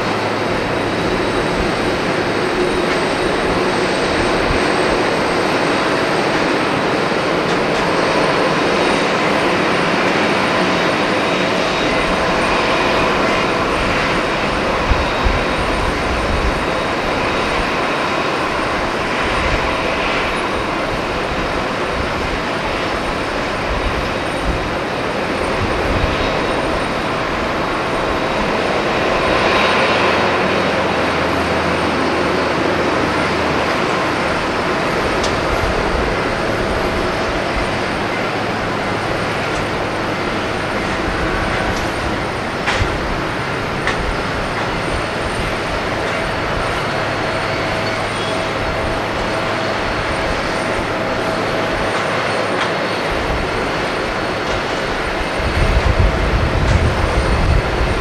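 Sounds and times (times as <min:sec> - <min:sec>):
jet engines taxiing: 0:00.0 - 0:58.0.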